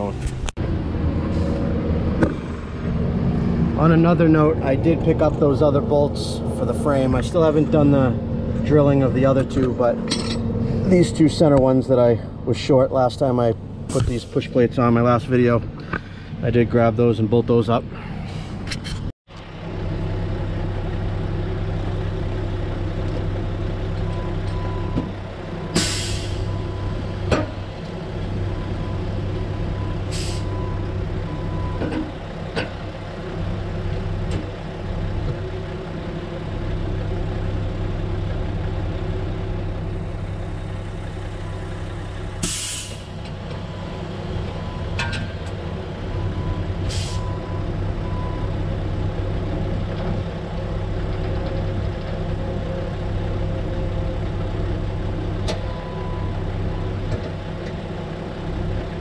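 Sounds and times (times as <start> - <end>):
engine idling: 19.3 - 59.0
short hisses: 42.4 - 43.1.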